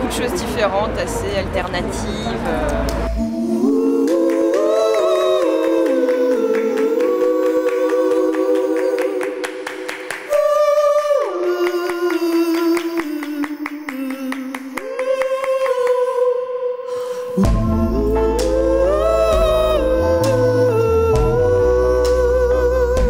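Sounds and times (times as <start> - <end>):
voices singing a cappella: 2.7 - 23.0
amplified woman singing: 10.3 - 23.0.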